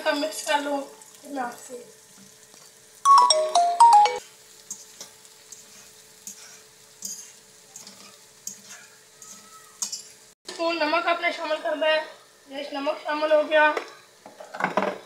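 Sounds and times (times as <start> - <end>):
phone ringtone beeps: 3.0 - 4.2
cabbage tossed in a wok: 4.2 - 10.3.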